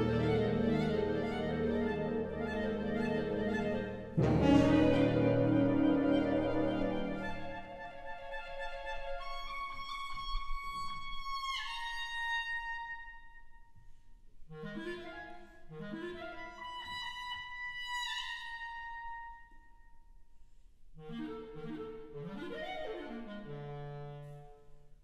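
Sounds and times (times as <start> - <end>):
wind band low chords: 0.0 - 7.8
solo clarinet sliding notes: 0.0 - 12.9, 21.0 - 24.6.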